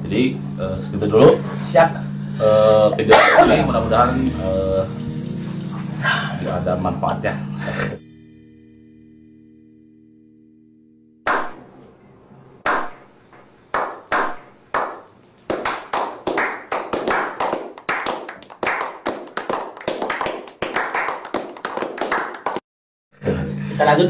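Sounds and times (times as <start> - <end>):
people clapping: 3.5 - 6.0, 12.6 - 13.0, 13.7 - 22.6.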